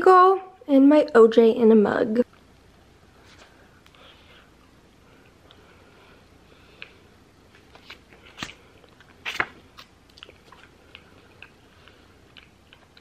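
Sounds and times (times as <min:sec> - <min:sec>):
person chewing bagel crunches: 0:06.7 - 0:13.0.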